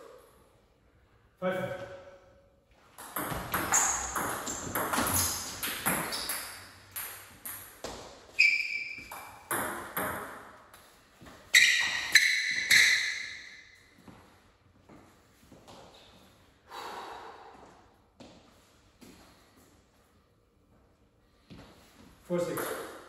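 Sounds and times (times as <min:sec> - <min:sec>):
ping pong ball bouncing: 0:03.0 - 0:08.0, 0:08.7 - 0:10.5, 0:22.5 - 0:23.0.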